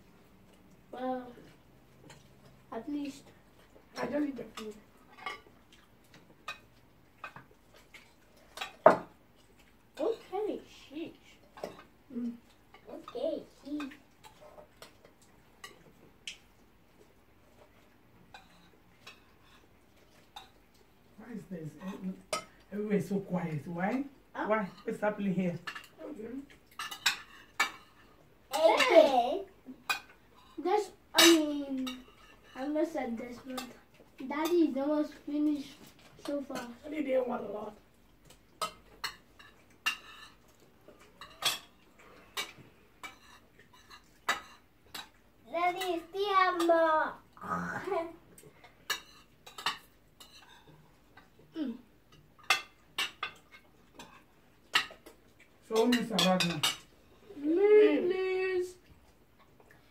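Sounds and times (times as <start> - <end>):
cutlery clinking on plates: 26.7 - 29.0, 38.6 - 40.4, 41.0 - 45.2, 48.8 - 51.3, 52.1 - 56.9.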